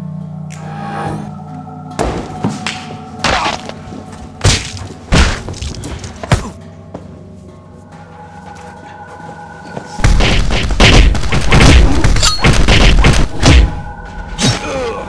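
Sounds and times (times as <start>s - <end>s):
background music: 0.0s - 15.0s
heavy thuds and whacks: 4.4s - 6.6s, 10.0s - 13.8s.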